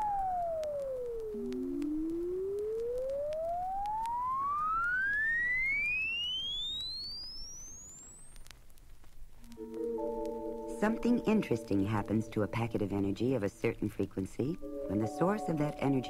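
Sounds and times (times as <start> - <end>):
electronic sine tone sweeping upward: 0.0 - 8.3.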